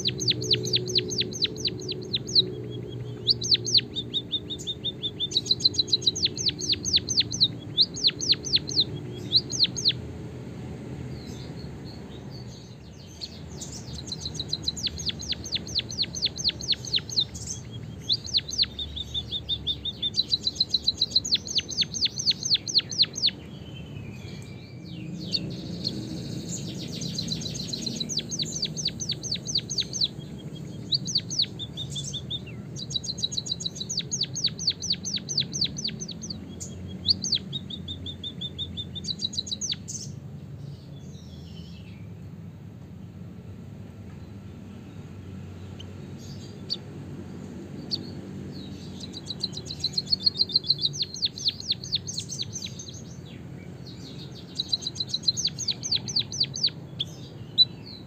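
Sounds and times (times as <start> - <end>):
bird whistles: 0.0 - 10.0, 13.1 - 23.4, 48.8 - 53.1, 54.1 - 57.9.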